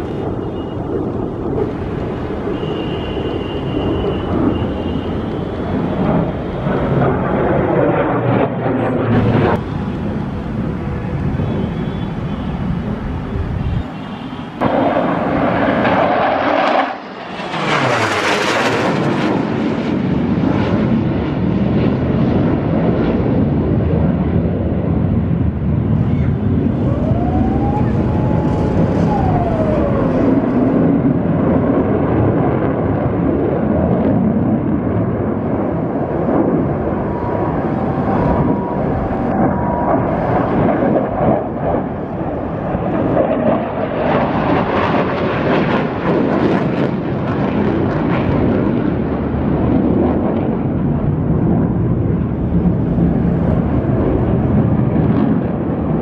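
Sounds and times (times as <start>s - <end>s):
fighter jet engines roaring: 0.0s - 56.0s
jet passing with sharp hiss: 25.1s - 31.8s.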